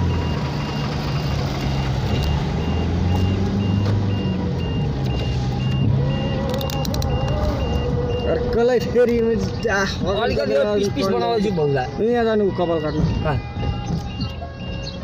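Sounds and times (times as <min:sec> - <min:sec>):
vehicle engine running: 0:00.0 - 0:10.1.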